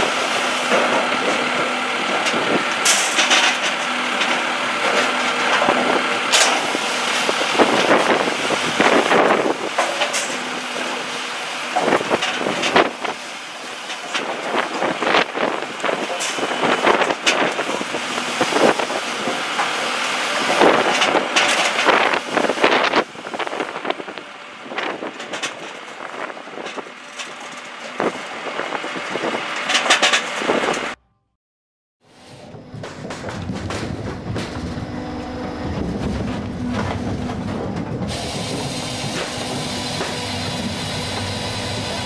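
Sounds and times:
machinery humming: 0:32.1 - 0:42.0.

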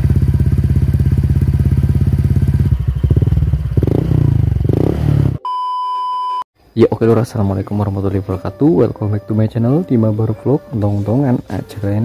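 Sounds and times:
motorcycle engine idling: 0:00.0 - 0:04.7.

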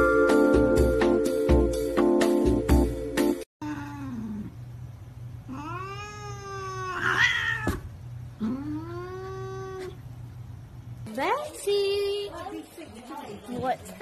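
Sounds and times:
steady low hum: 0:03.6 - 0:12.3
cat yowling: 0:05.5 - 0:10.0.

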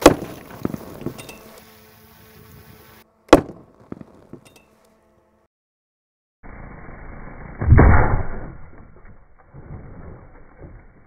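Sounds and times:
shotgun blast: 0:03.3 - 0:03.7, 0:07.5 - 0:08.8.

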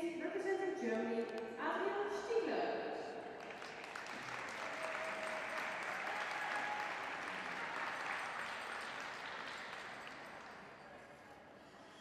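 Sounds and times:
audience applauding: 0:03.4 - 0:11.2.

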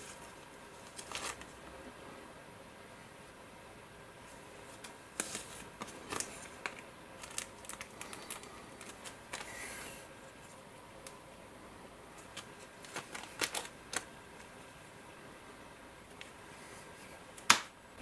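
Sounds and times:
plastic bags crinkling: 0:00.8 - 0:01.5, 0:05.2 - 0:09.6, 0:12.2 - 0:14.1.

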